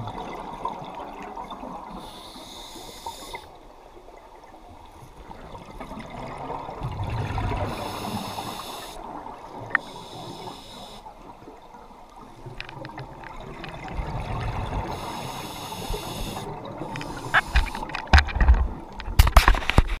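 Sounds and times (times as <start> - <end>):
regulator breathing hiss: 2.0 - 3.5, 7.7 - 9.1, 9.8 - 11.1, 14.9 - 17.8.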